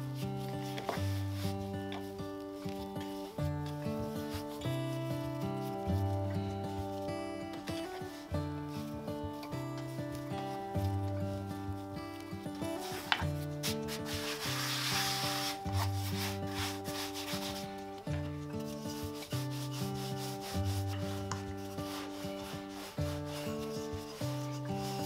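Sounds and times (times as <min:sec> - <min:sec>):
gentle background music: 0:00.0 - 0:25.0
hands handling dough: 0:00.0 - 0:25.0
rolling pin rolling dough: 0:00.4 - 0:25.0.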